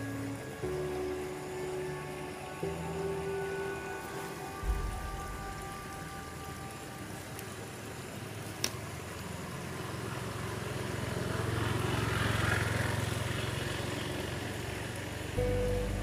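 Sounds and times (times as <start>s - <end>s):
vehicle passing by: 9.0s - 16.0s.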